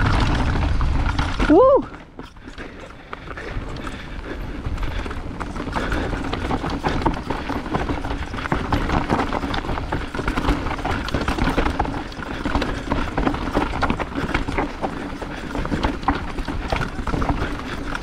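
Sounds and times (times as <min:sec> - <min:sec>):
mountain bike rattling over rocks: 0:00.0 - 0:18.0
wind rumble on microphone: 0:00.0 - 0:18.0.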